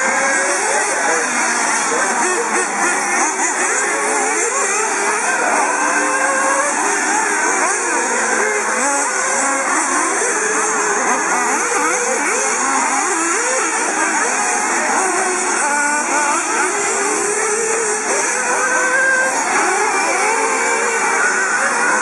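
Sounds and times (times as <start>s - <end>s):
rc car engines racing: 0.0s - 22.0s.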